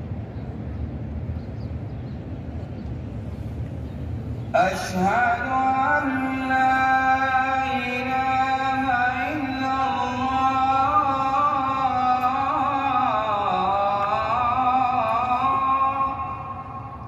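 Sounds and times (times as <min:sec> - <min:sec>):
man chanting: 0:04.6 - 0:17.0.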